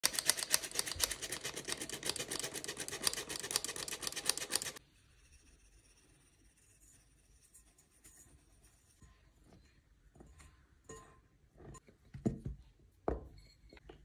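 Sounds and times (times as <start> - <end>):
flour sifter rasping: 0.0 - 4.8.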